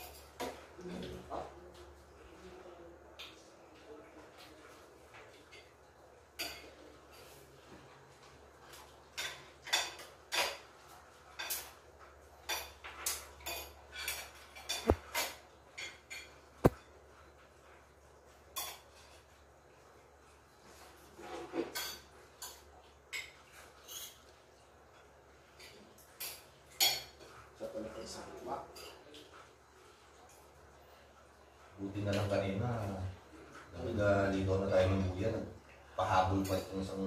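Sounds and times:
cutlery clinking on ceramic plates: 0.0s - 1.1s, 5.2s - 7.4s, 8.6s - 16.9s, 18.5s - 19.2s, 21.2s - 27.4s, 36.4s - 37.0s.

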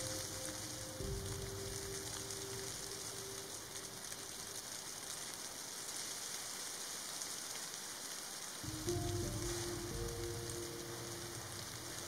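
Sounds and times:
music: 0.0s - 4.4s, 8.6s - 12.0s
snowfall hiss: 0.0s - 12.0s.

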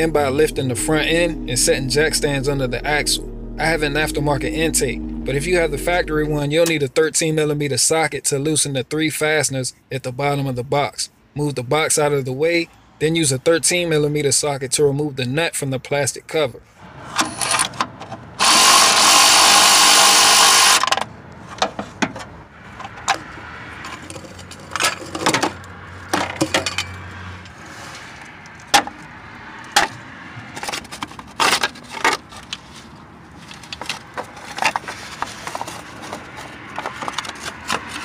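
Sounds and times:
cordless power tool spinning: 18.4s - 20.9s.

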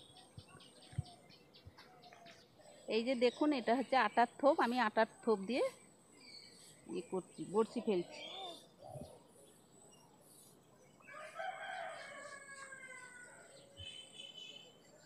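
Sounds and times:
faint rooster crowing: 11.0s - 14.0s.

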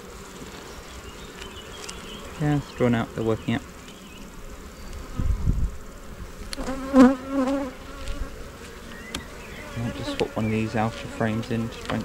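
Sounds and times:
honey bees buzzing: 0.0s - 12.0s
bee flying past microphone: 3.9s - 12.0s
wooden knocks of hive frame: 11.4s - 12.0s.

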